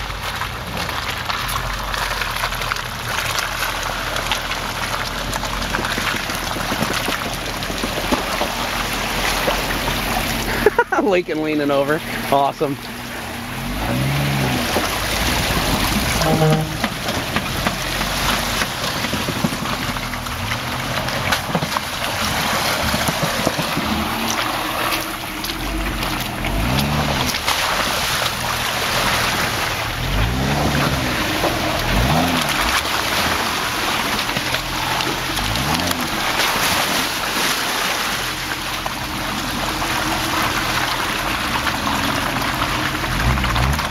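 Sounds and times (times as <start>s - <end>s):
tires churning and splashing in mud: 0.0s - 43.9s
engine revving: 11.7s - 19.4s, 20.5s - 38.7s, 39.8s - 43.9s.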